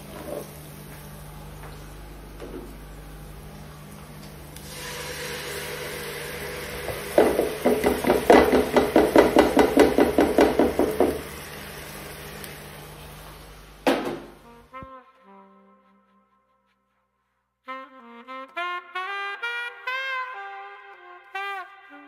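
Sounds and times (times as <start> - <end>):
food sizzling in a pot: 4.6 - 13.9.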